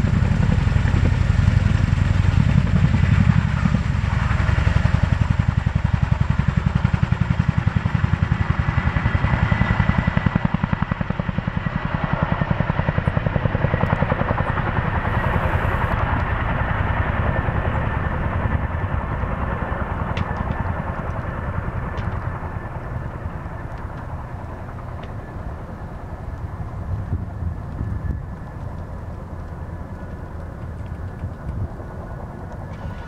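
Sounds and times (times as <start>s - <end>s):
helicopter rotors chopping: 0.0s - 33.0s
turbine whine: 12.5s - 33.0s.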